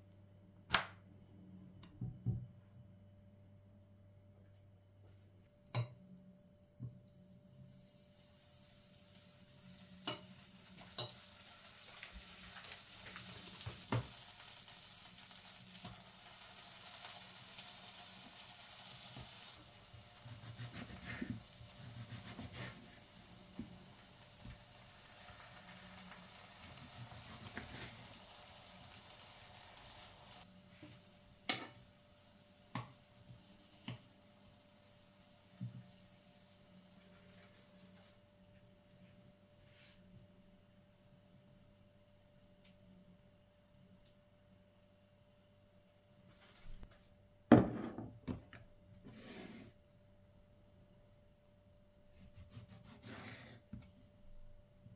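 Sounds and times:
food sizzling in frying pan: 7.4 - 37.2.

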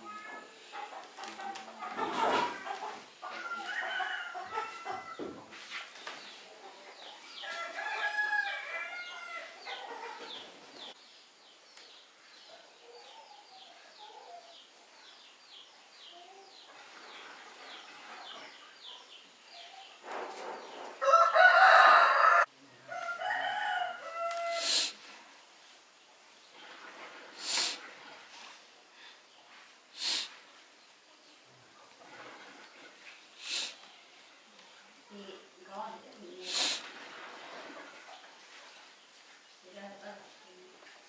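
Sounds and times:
chickens clucking: 0.0 - 5.4, 9.1 - 11.0
rooster crowing: 3.3 - 5.3, 7.4 - 10.2, 21.0 - 24.9.

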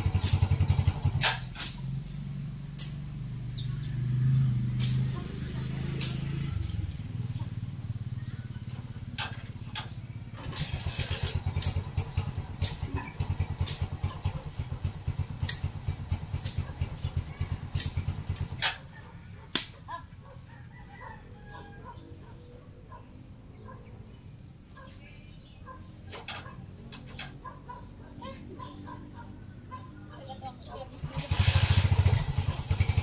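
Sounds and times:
brush cutter engine running: 0.0 - 2.2, 8.8 - 18.8, 31.0 - 33.0.

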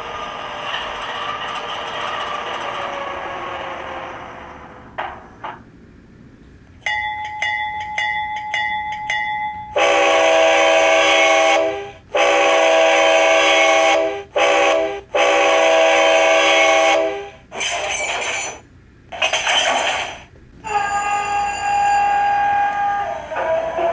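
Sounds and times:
model locomotive bell ringing: 6.8 - 10.0, 17.6 - 18.6, 20.6 - 23.2
locomotive horn blowing: 9.8 - 17.4, 20.6 - 23.9.

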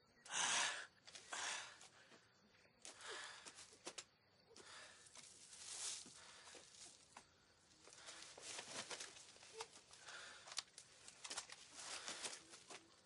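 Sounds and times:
rustling of forest litter and cloth: 4.6 - 13.0.

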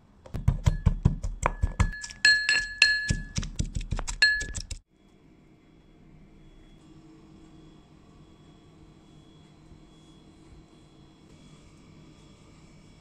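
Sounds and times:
pestle pounding in metal mortar: 0.3 - 4.8.

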